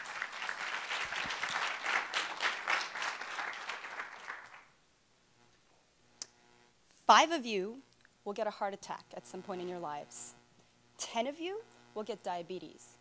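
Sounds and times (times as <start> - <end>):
audience applauding: 0.0 - 4.7.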